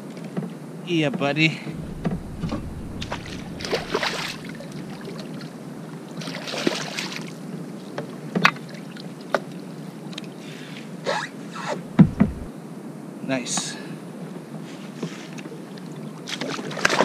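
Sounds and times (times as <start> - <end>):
water splashing: 1.7 - 5.2, 11.9 - 12.5
sharp knocks: 11.9 - 12.5.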